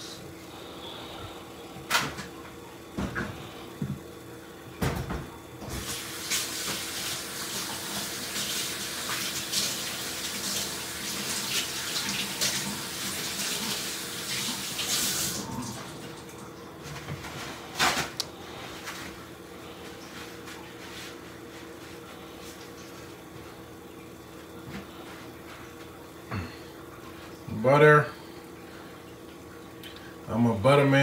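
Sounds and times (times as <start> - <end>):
water running from tap: 4.8 - 16.7.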